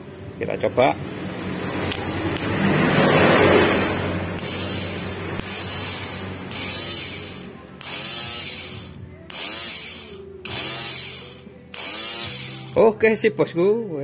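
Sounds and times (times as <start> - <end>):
starter motor whirring: 3.6 - 12.8.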